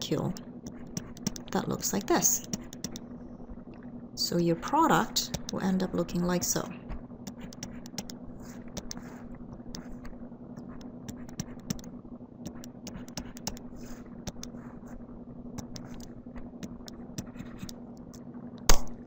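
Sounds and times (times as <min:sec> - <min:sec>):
low hum: 0:00.0 - 0:19.0
stylus tapping on tablet screen: 0:00.8 - 0:03.0, 0:07.3 - 0:09.1.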